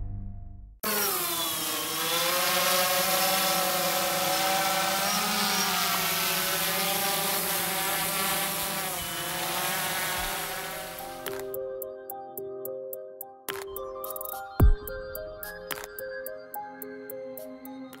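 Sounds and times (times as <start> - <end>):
drone propellers whirring: 0.8 - 11.6.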